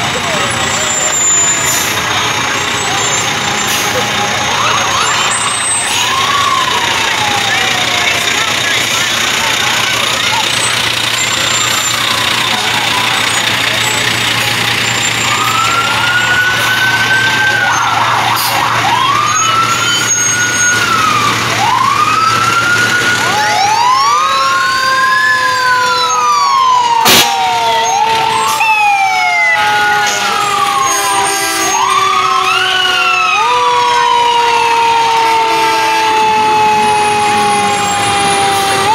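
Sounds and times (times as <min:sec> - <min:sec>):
fire engine sirens wailing: 0:00.0 - 0:38.9
siren with slowly falling tone: 0:02.7 - 0:38.9
sharp crack: 0:27.0 - 0:27.6.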